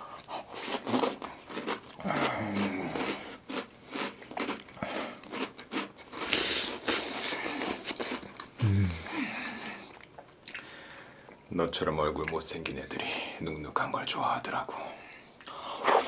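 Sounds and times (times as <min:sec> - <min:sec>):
crunching and chewing cereal: 0:00.0 - 0:08.6.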